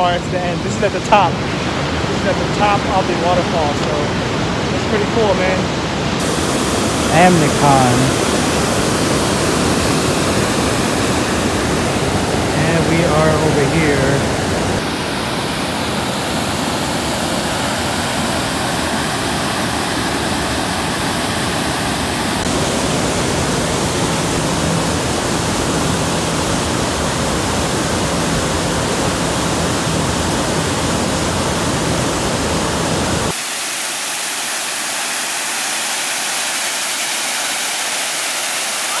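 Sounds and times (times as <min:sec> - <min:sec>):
roar of river rapids: 0:00.0 - 0:39.0
hiss of falling water: 0:06.2 - 0:12.4, 0:30.3 - 0:39.0.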